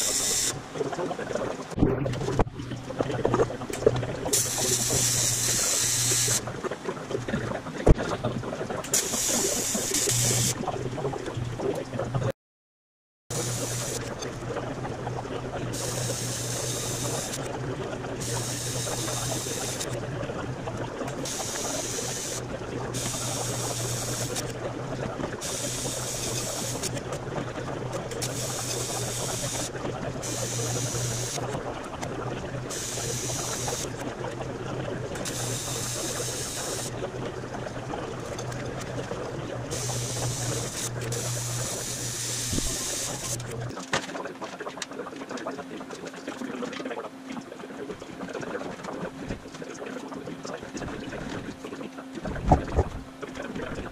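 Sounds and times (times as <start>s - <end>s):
welding arc buzzing hiss: 0.0s - 0.6s, 4.3s - 6.4s, 8.9s - 10.6s, 13.3s - 14.2s, 15.8s - 17.4s, 18.2s - 20.0s, 21.2s - 22.4s, 23.0s - 24.5s, 25.4s - 27.0s, 28.2s - 31.4s, 32.7s - 33.9s, 35.3s - 36.9s, 39.7s - 43.7s
low electrical hum: 13.3s - 53.9s.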